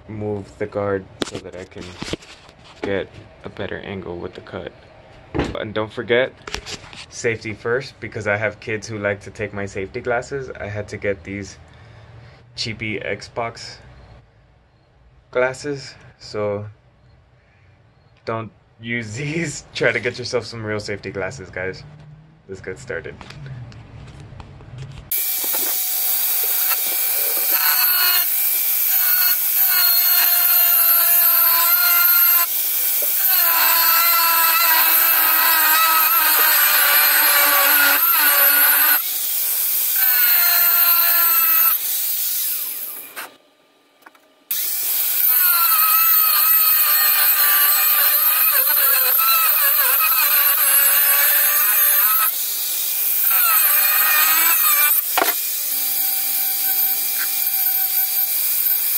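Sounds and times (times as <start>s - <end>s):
angle grinder cutting metal: 25.1s - 43.4s, 44.5s - 58.9s.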